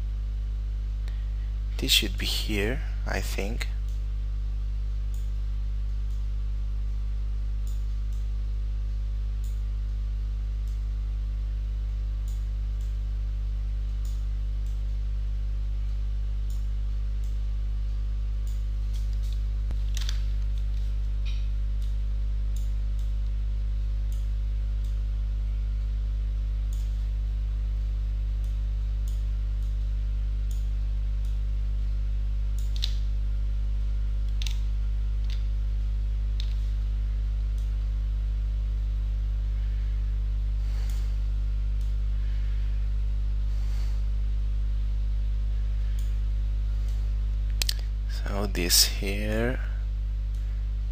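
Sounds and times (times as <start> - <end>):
electrical mains hum: 0.0 - 50.9.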